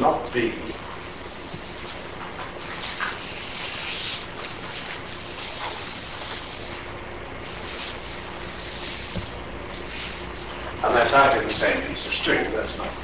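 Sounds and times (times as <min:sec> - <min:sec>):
steady background hiss: 0:00.0 - 0:13.0
chalk scraping on blackboard: 0:02.7 - 0:06.9, 0:07.6 - 0:09.2, 0:09.9 - 0:10.5.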